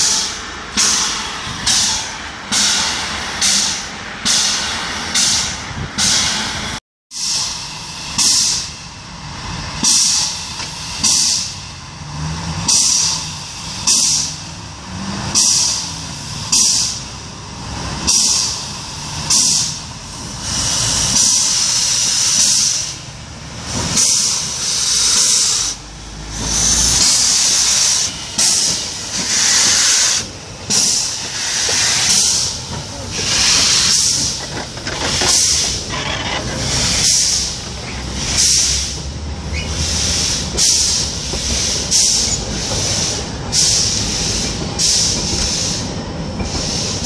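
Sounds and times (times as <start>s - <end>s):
steam locomotive hissing puffs: 0.0s - 8.9s, 9.7s - 11.7s, 12.6s - 14.6s, 18.0s - 47.0s
long steady steam hiss: 0.0s - 9.2s, 18.1s - 34.4s, 39.8s - 47.0s.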